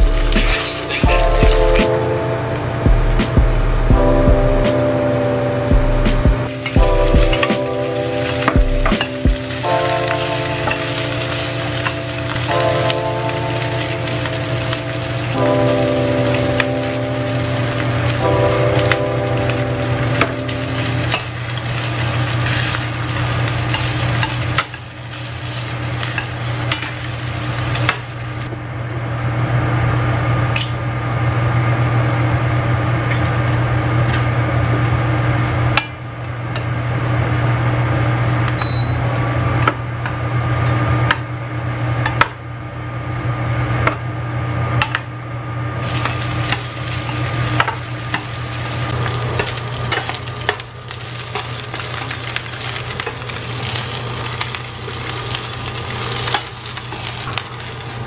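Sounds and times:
fried rice sizzling in skillet: 0.0s - 2.0s, 6.5s - 28.5s, 45.8s - 58.0s
low hum: 0.0s - 44.6s.

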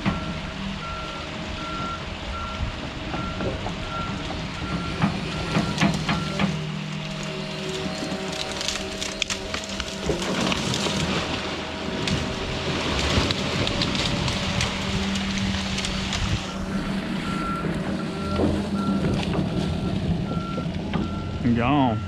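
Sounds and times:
reversing alarm beeping: 0.0s - 12.0s, 16.4s - 22.0s
rushing crackling noise: 0.0s - 21.5s
excavator diesel engine running: 0.0s - 22.0s.

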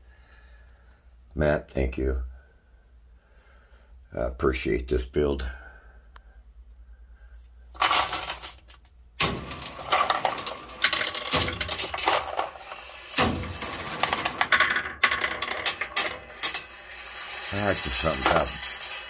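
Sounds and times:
metal balls clattering on metal: 7.8s - 19.0s.

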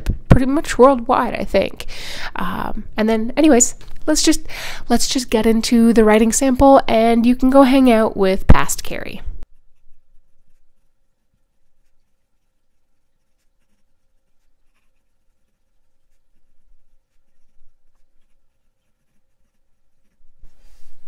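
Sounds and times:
pen nib scratching on paper: 9.5s - 20.5s.

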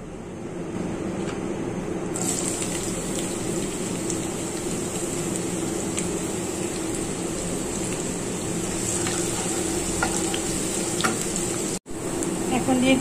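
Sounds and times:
onions sizzling in hot oil: 2.2s - 13.0s.

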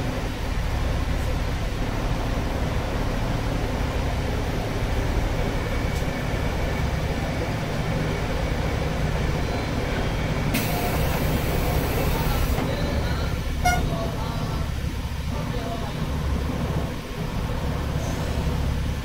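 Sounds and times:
railcar low rumble: 0.0s - 19.0s
hiss: 10.5s - 12.6s.

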